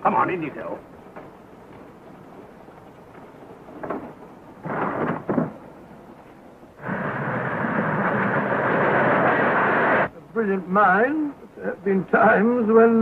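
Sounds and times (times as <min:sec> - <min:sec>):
short noise bursts: 0:04.2 - 0:10.1
train rushing at speed: 0:06.8 - 0:10.1.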